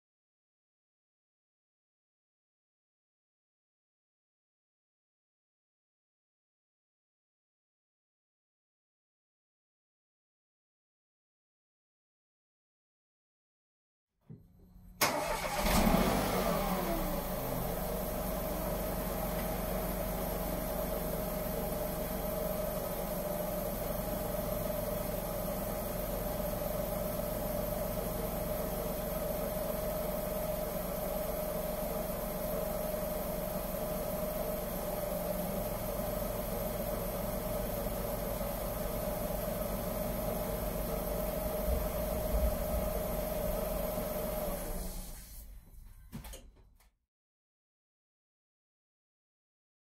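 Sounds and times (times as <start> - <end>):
car engine starting and idling: 14.4 - 46.4.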